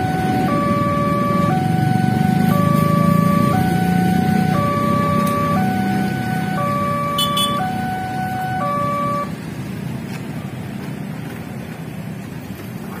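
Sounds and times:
two-tone level crossing alarm: 0.0s - 9.3s
motorbike and traffic rumble: 0.0s - 13.0s.

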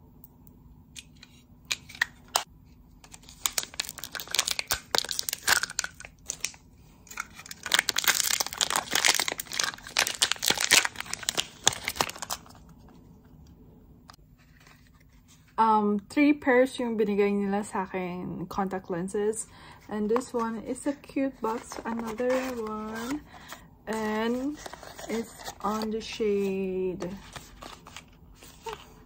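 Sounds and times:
packaging crinkling and tearing: 1.7s - 12.6s, 27.1s - 29.0s.

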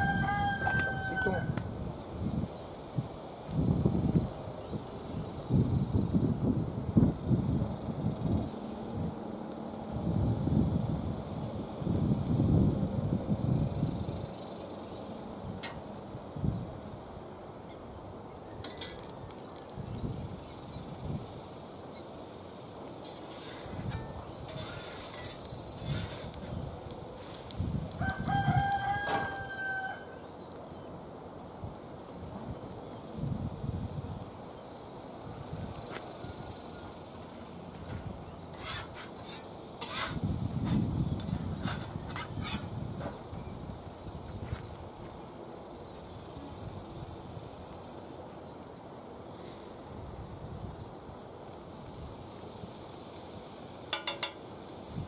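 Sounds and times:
rooster crowing: 0.0s - 1.6s, 28.0s - 30.3s, 36.0s - 37.0s
pancake sizzling in pan: 0.0s - 55.0s.

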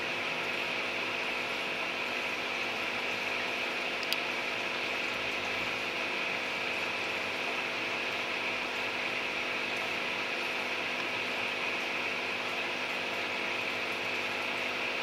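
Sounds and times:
aquarium pump humming: 0.0s - 15.0s
light click: 4.0s - 4.2s.

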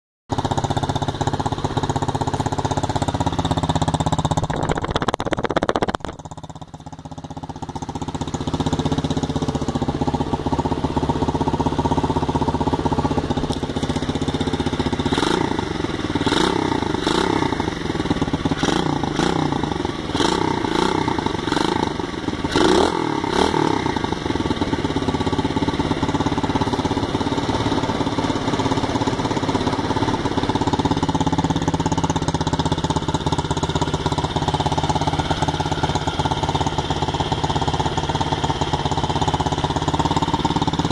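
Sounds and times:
motorbike engine revving: 13.2s - 37.3s.

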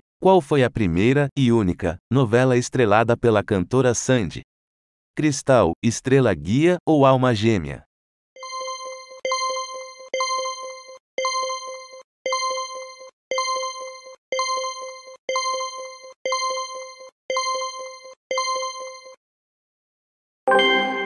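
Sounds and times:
electronic ding: 8.4s - 19.2s, 20.5s - 21.0s.

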